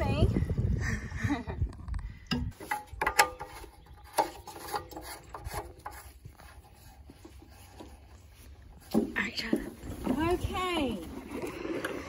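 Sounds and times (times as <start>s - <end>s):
clicks and knocks handling engine: 2.3s - 6.0s.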